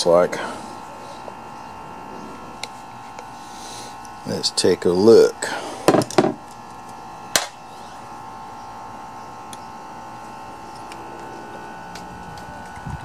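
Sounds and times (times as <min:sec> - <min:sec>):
steady high background hum: 0:00.0 - 0:13.0.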